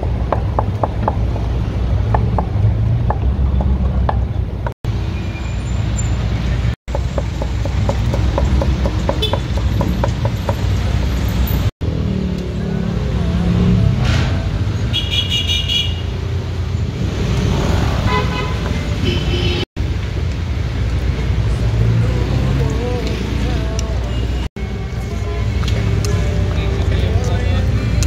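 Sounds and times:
street traffic rumble: 0:00.0 - 0:28.0
cleaver chopping on wooden block: 0:06.9 - 0:10.6.

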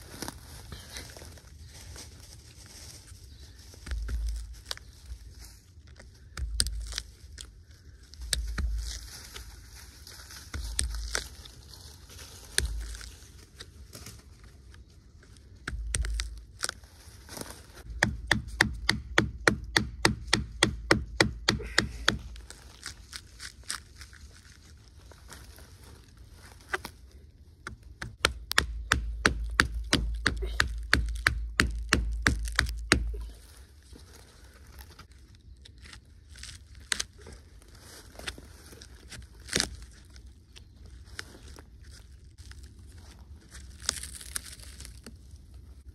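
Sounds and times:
dull low thumps: 0:17.9 - 0:22.4.

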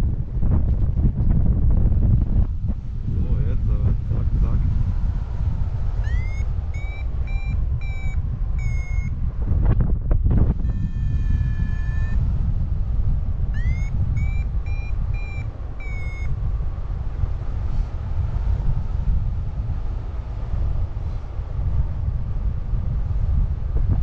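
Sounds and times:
wind rushing on microphone: 0:00.0 - 0:24.0
variometer beeping: 0:06.0 - 0:09.2, 0:10.5 - 0:12.3, 0:13.4 - 0:16.4.

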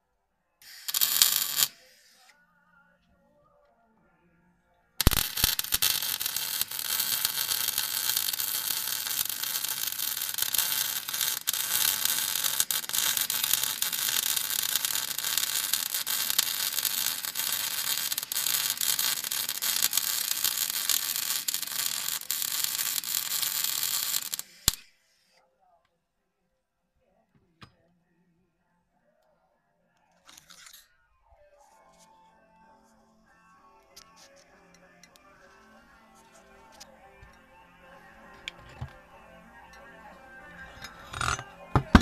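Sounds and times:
welding arc crackling: 0:00.6 - 0:01.9, 0:05.0 - 0:24.8.

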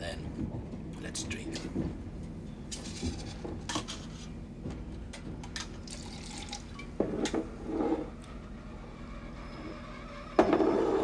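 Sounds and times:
train carriage rumble: 0:00.0 - 0:05.9.

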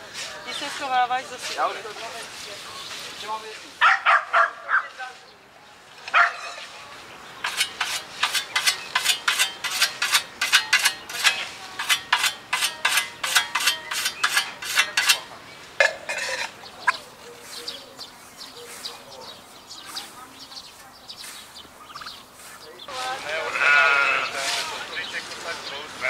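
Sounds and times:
whetstone scraping scythe blade: 0:07.4 - 0:16.6.

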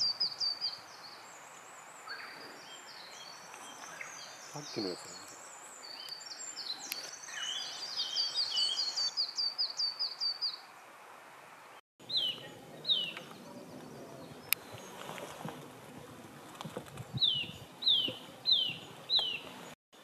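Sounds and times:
songbirds singing: 0:00.0 - 0:11.0, 0:12.0 - 0:20.0.

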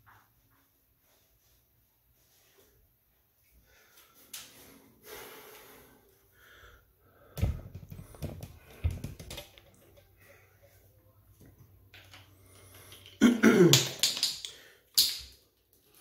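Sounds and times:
breathing close to microphone: 0:04.8 - 0:09.2.

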